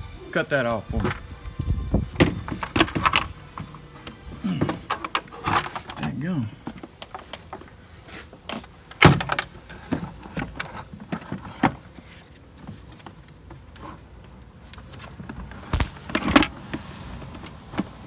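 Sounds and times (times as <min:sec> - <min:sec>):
clicks and knocks of plastic parts: 0:02.2 - 0:07.7, 0:08.4 - 0:12.0.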